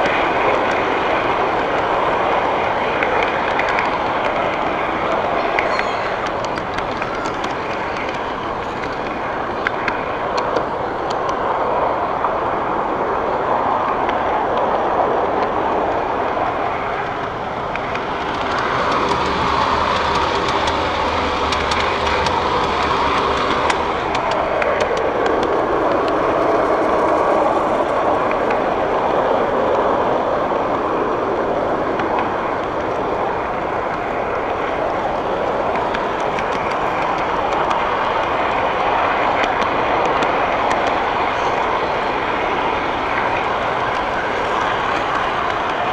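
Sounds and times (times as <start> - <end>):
clicks of wheels on track: 0.0 - 45.9
model train wheels rattling on rail: 17.0 - 30.2.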